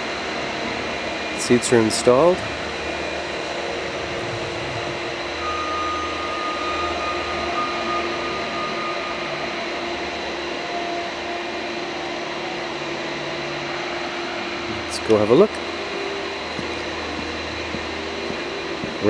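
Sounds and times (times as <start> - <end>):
machinery drone: 0.0 - 19.0
rushing noise: 1.2 - 8.7.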